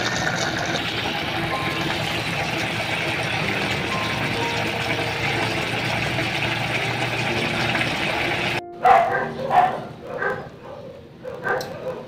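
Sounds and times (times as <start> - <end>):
pot boiling and bubbling: 0.0 - 8.6
dog barking: 8.8 - 12.0.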